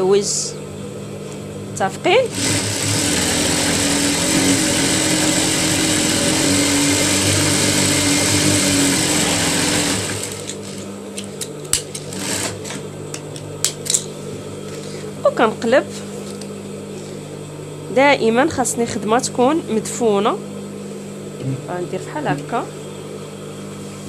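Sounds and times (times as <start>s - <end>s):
sewing machine running: 2.2s - 10.8s, 12.1s - 12.8s.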